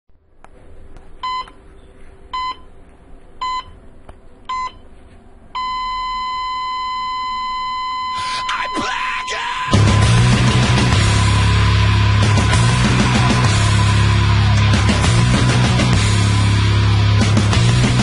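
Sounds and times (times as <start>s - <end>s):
electronic countdown beeps: 1.2s - 1.6s, 2.4s - 2.7s, 3.4s - 3.8s, 5.6s - 9.8s.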